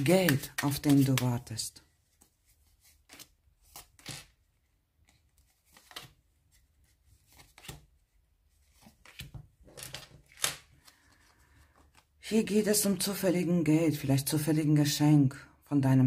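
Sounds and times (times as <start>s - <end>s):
playing cards slapping on wood: 7.3s - 7.9s.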